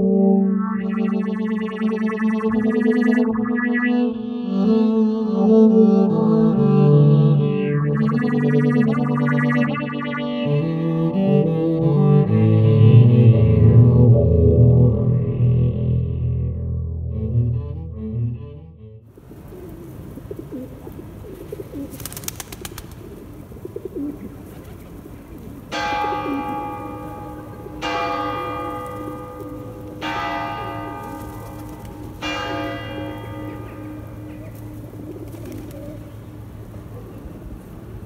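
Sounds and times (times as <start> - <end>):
pigeons cooing: 19.4 - 26.6, 33.4 - 37.8
church bell striking: 25.7 - 35.2.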